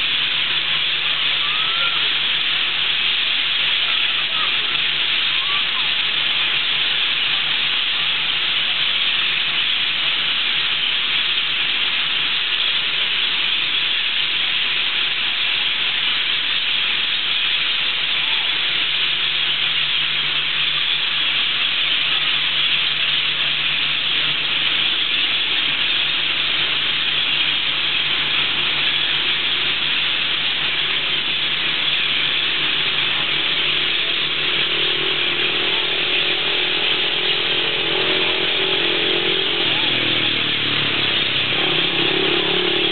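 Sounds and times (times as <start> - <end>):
motor humming: 0.0 - 42.9
flock of parrots screeching: 1.1 - 2.4, 3.8 - 6.1.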